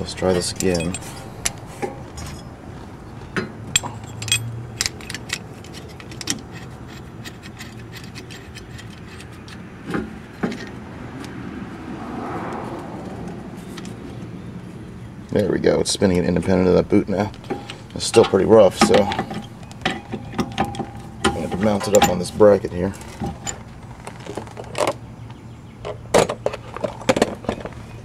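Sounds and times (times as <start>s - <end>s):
small metal clicks and clinks: 3.7s - 9.6s.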